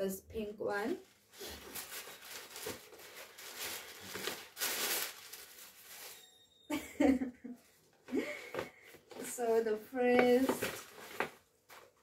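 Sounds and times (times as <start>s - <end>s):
wrapping paper rustling: 1.1s - 6.5s, 8.4s - 12.0s.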